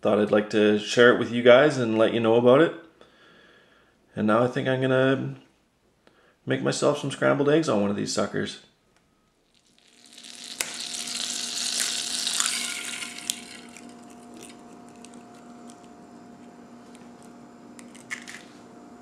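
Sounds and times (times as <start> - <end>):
egg sizzling in a pan: 9.5 - 16.0
small pops: 9.6 - 13.6.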